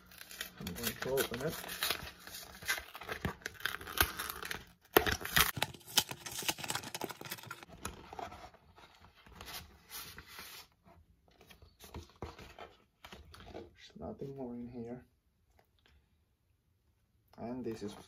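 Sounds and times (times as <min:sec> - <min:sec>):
cardboard and paper ripping: 0:00.0 - 0:10.7.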